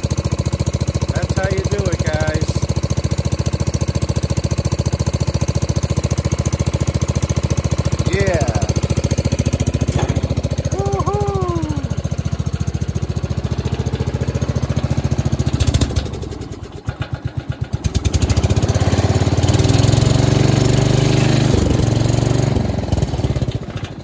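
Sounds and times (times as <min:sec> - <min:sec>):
garden tractor engine running: 0:00.0 - 0:24.0.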